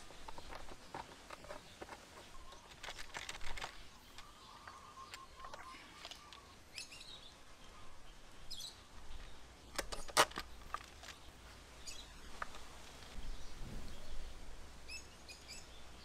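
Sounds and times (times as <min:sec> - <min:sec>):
faint bird chirps: 0:00.1 - 0:09.4.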